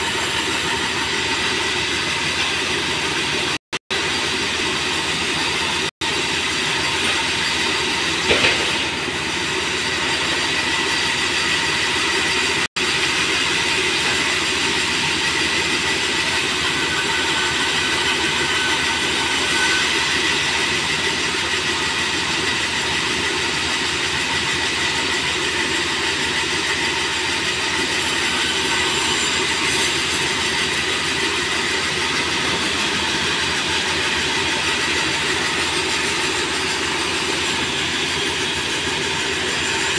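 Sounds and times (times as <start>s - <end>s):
bandsaw cutting wood: 0.0s - 39.9s
loud knock: 8.2s - 9.0s.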